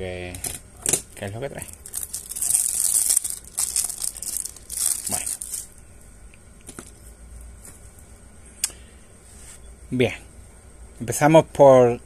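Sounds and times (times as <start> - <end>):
plastic wrapping tearing and crinkling: 1.7 - 5.7.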